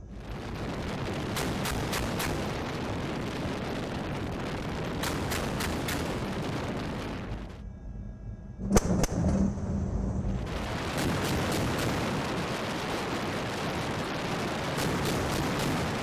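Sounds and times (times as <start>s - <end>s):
wind rush on microphone: 0.0s - 7.6s, 10.2s - 16.0s.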